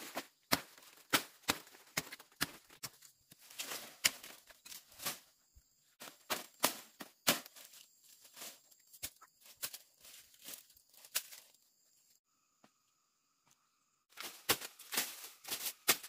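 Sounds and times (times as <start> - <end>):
machete chopping palm stems: 0.0 - 5.2, 6.0 - 7.7, 14.2 - 16.0
dry leaves rustling and crackling: 6.0 - 11.6, 14.1 - 16.0.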